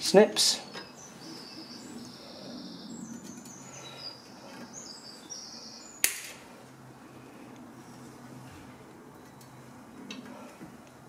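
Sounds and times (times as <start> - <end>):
faint bird chirping: 0.6 - 6.0
side cutters snapping rivet: 6.0 - 6.4.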